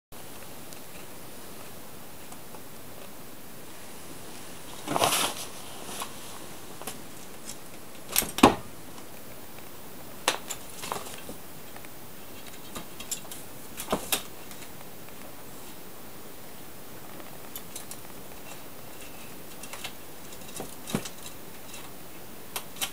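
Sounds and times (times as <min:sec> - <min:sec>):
faint steady hiss: 0:00.1 - 0:22.9.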